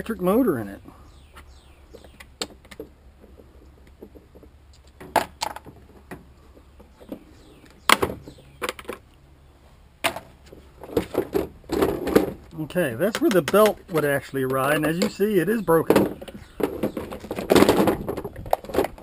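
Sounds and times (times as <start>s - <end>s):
plastic parts clicking and clattering: 10.0s - 19.0s.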